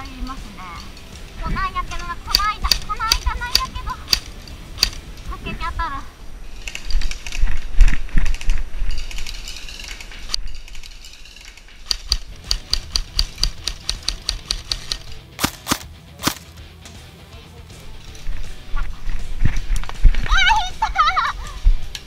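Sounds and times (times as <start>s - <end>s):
loud cracks: 11.3s - 16.6s
airsoft gun shots: 11.8s - 16.6s.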